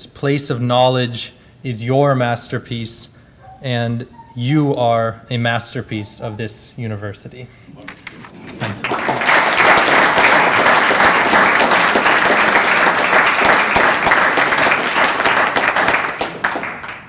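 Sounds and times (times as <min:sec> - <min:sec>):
audience applauding: 0:07.9 - 0:17.0.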